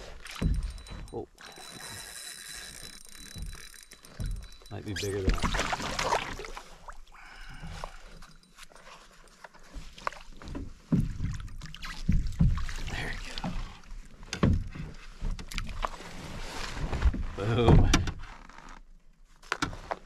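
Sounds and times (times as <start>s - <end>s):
water splashing: 0.0s - 8.0s, 9.9s - 14.1s
thumps against canoe hull: 0.2s - 1.1s, 9.8s - 15.6s, 16.9s - 18.3s.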